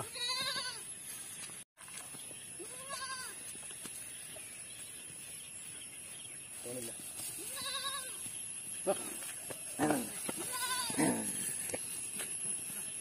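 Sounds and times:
goats bleating: 0.0s - 0.8s, 2.6s - 3.4s, 7.4s - 8.2s, 9.8s - 11.4s.

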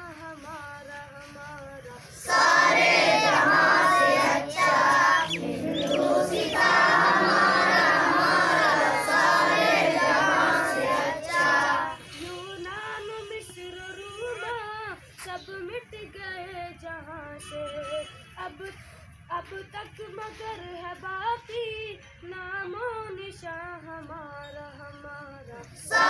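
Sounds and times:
boys singing in chorus: 0.0s - 14.6s, 25.6s - 26.0s.

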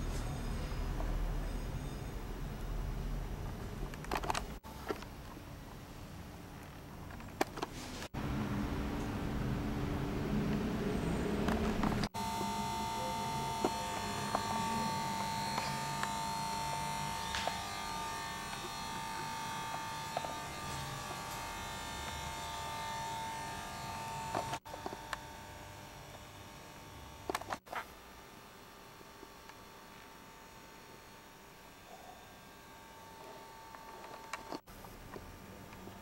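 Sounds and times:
electrical buzz with high hum: 8.1s - 36.0s.

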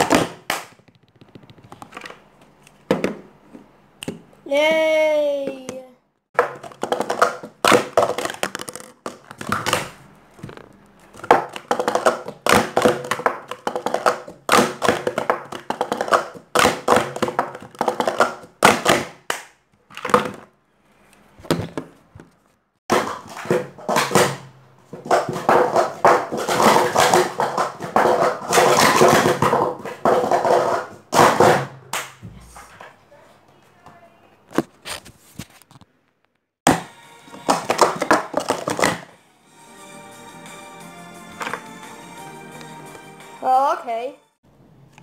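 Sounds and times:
plastic cups clattering: 6.4s - 20.6s, 21.4s - 33.0s, 36.7s - 39.1s.

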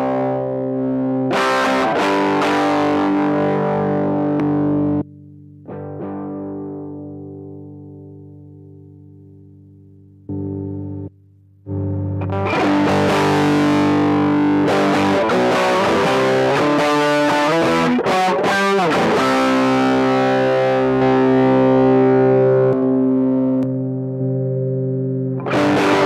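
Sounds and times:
distorted electric guitar: 0.0s - 26.0s.

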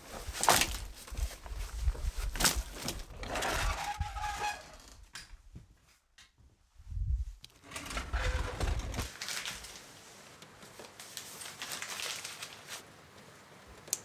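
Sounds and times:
dry branches cracking and clattering: 0.2s - 4.4s, 7.8s - 9.8s, 11.2s - 12.7s
low rumble of handling noise: 6.6s - 9.1s.

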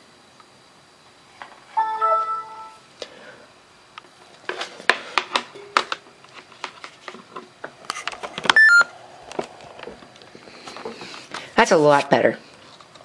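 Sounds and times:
short electronic beep: 8.6s - 8.9s.

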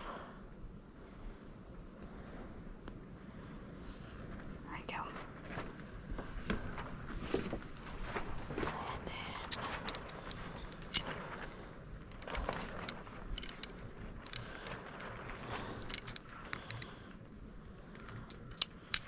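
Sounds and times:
metal pistol parts clicking: 9.4s - 11.2s, 12.2s - 15.1s, 15.8s - 16.9s, 18.0s - 19.0s.

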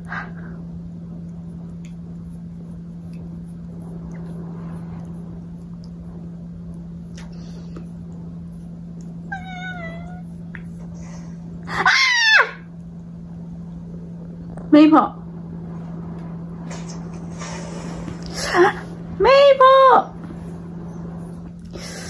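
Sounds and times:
steady low hum: 0.0s - 22.0s
cat meowing: 9.3s - 10.3s.

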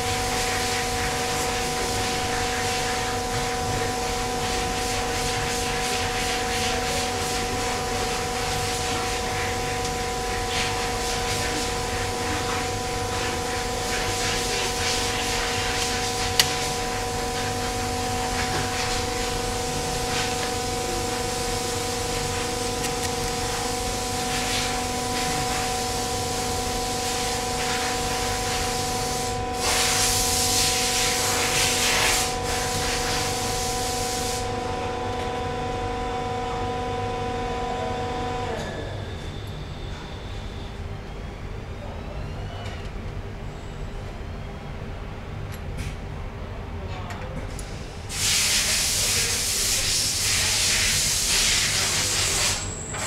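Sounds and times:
pitched machine hum: 0.0s - 42.0s
loud hiss: 26.8s - 34.5s, 48.1s - 52.6s.

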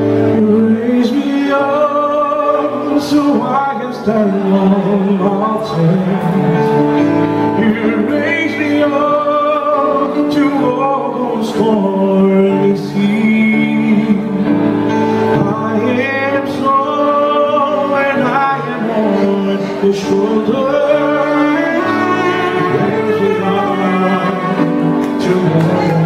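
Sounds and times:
keyboard chords: 0.0s - 26.0s
man singing into a microphone: 0.0s - 26.0s.

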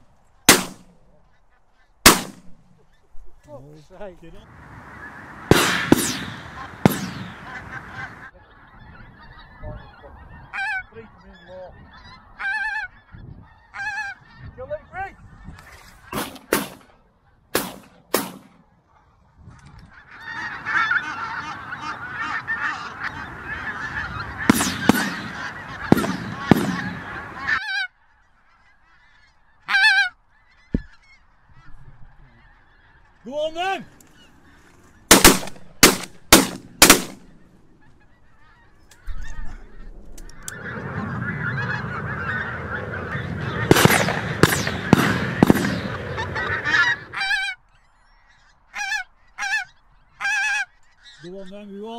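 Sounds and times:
geese honking: 0.0s - 51.9s
shotgun shots: 0.5s - 0.9s, 2.1s - 2.6s, 5.5s - 7.6s, 16.1s - 16.9s, 17.6s - 18.6s, 24.5s - 27.2s, 35.1s - 37.3s, 43.7s - 46.4s.

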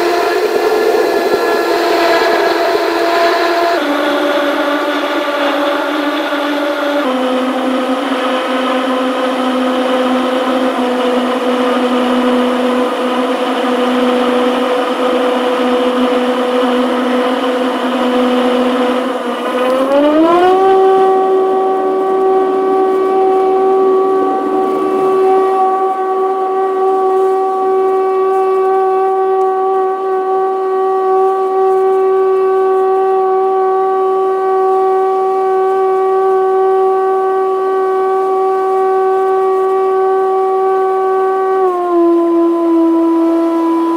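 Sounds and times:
propeller drone: 0.0s - 43.9s.

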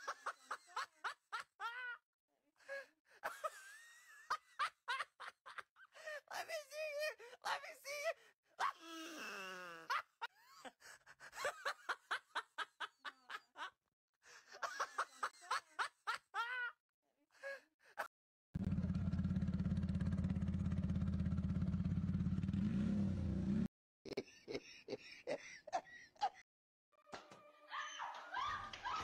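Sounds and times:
person laughing: 0.0s - 2.0s, 2.6s - 16.8s, 24.1s - 26.4s
motor scooter engine running: 18.6s - 23.7s.

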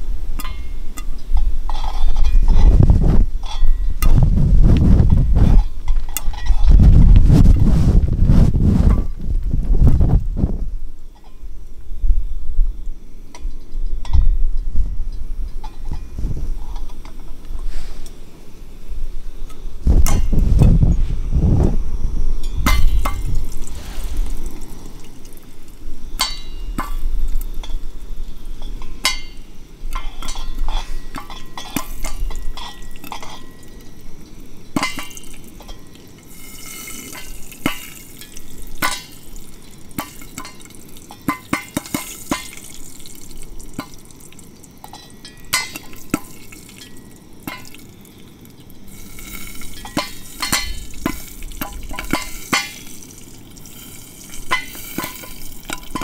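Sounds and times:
bacon grease sizzling: 31.7s - 56.0s.

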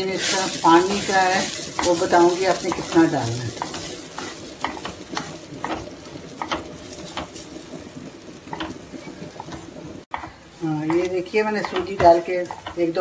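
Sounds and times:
soft sizzle: 0.0s - 13.0s
spatula scraping a pan: 0.0s - 13.0s.

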